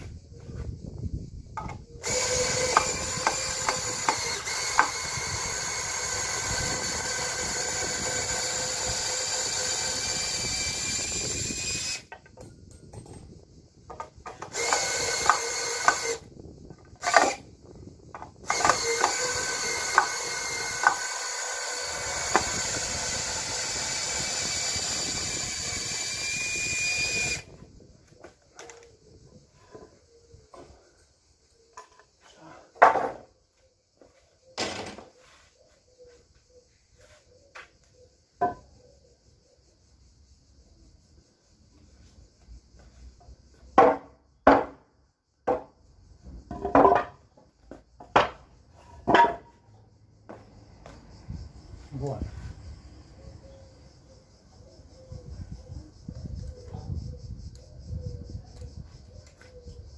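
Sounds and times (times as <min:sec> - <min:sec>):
power tool motor running: 0:02.0 - 0:12.1, 0:14.4 - 0:16.3, 0:17.0 - 0:17.5, 0:18.4 - 0:27.5.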